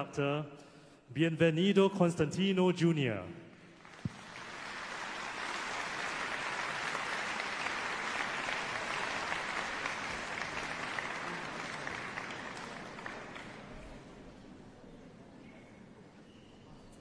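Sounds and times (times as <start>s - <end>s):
audience applauding: 3.8s - 13.7s.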